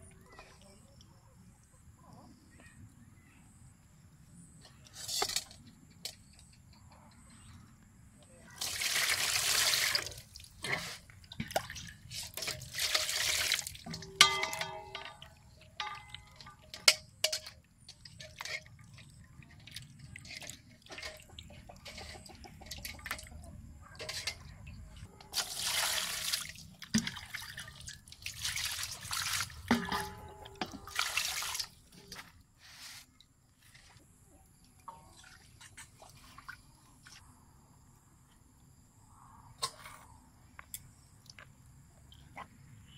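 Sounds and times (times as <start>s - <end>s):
water splashing in metal basin: 8.6s - 32.2s
knocks against metal basin: 13.9s - 17.4s, 29.7s - 30.9s.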